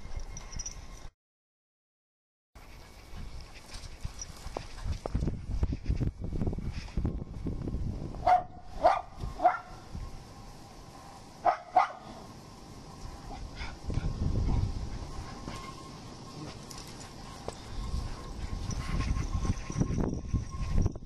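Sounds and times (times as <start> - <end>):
wind buffeting microphone: 3.0 - 16.4, 17.0 - 21.0
puppy barking: 8.2 - 9.8, 11.4 - 12.1.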